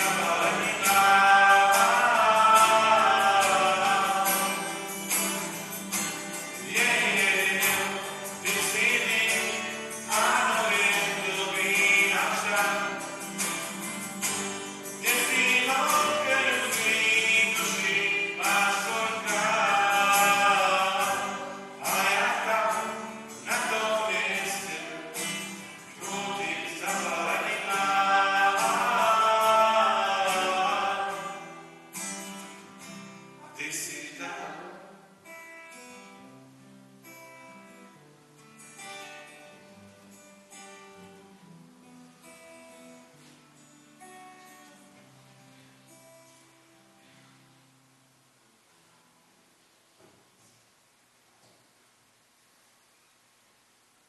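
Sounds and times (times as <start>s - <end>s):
voices singing a hymn: 0.0s - 4.9s, 15.0s - 31.8s
guitar: 0.0s - 54.0s.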